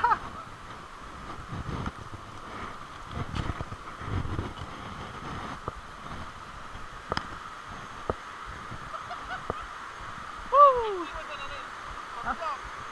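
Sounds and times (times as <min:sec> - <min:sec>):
steady high hiss: 0:00.0 - 0:12.9
wind buffeting microphone: 0:00.0 - 0:12.9.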